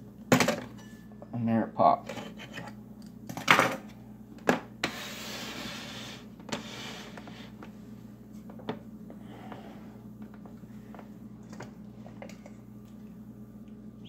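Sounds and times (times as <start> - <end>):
faint low hum: 5.6 - 14.0.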